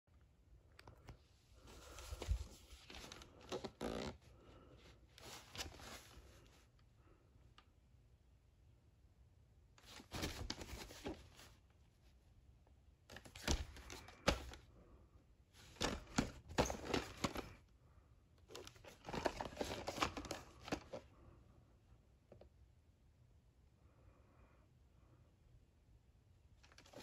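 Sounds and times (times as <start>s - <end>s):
cardboard sleeve rustling: 1.6s - 6.6s, 9.8s - 11.6s, 13.1s - 14.6s, 15.6s - 17.6s, 18.5s - 21.0s.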